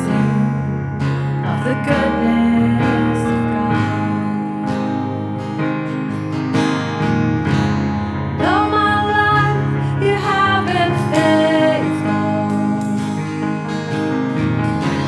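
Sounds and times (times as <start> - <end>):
woman singing: 0.0 - 5.4, 8.4 - 13.6
acoustic guitar strumming: 0.0 - 15.0.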